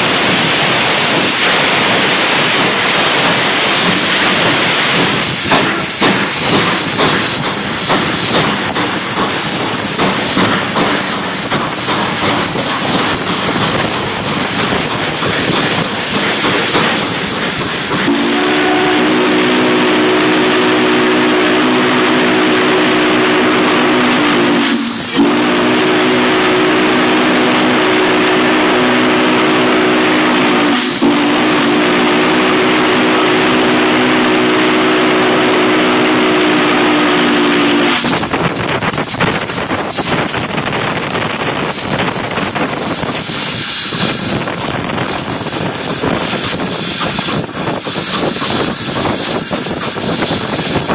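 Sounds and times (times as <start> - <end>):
steam locomotive rushing: 0.0 - 50.9
steam whistle chord: 18.0 - 38.2.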